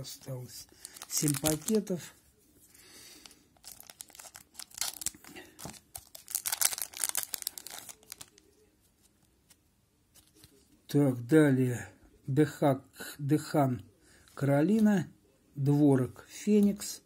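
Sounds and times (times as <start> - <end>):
wrapper crinkling and tearing: 0.8 - 1.9, 3.2 - 8.4.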